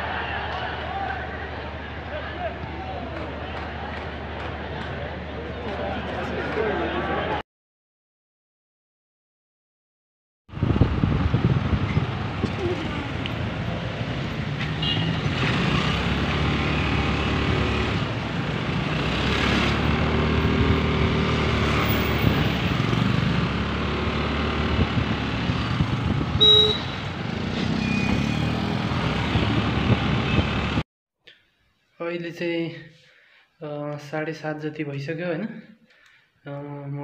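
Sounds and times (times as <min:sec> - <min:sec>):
vehicles passing: 0:00.0 - 0:07.4, 0:10.5 - 0:30.8
wind and road noise: 0:10.5 - 0:30.8
short loud beep: 0:26.4 - 0:26.9.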